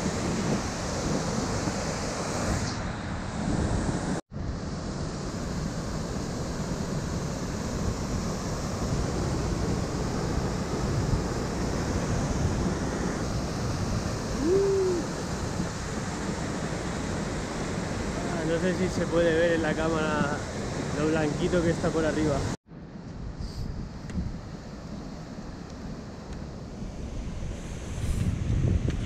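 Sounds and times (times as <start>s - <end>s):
wind on microphone: 0.0s - 22.5s, 23.2s - 25.2s, 26.8s - 29.0s
rushing white water: 5.2s - 22.6s.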